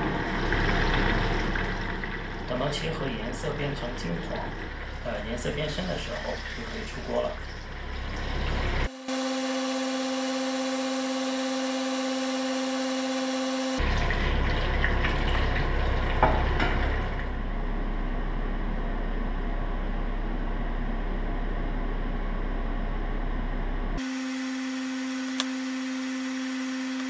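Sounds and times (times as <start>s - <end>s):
steady pitched hum: 0.0s - 14.8s.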